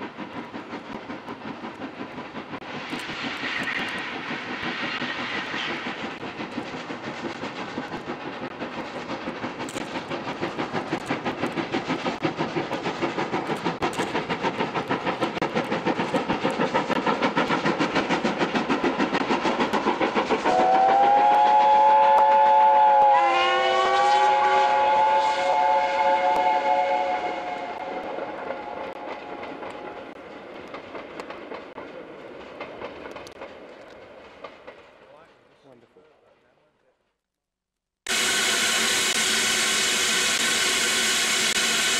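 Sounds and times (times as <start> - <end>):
steam locomotive exhaust beats: 0.0 - 36.8, 38.1 - 41.9
steam whistle chord: 20.5 - 28.1.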